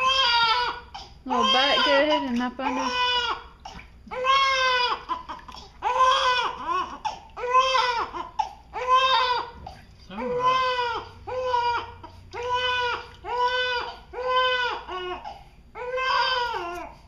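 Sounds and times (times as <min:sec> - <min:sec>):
baby crying: 0:00.0 - 0:17.0.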